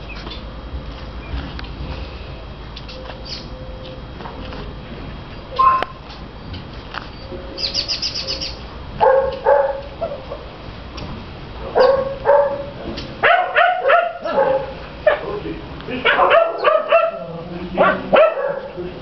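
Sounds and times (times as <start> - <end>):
high bird chirps: 2.9 - 3.6, 7.1 - 8.6
dogs barking: 9.0 - 10.5, 11.6 - 19.0.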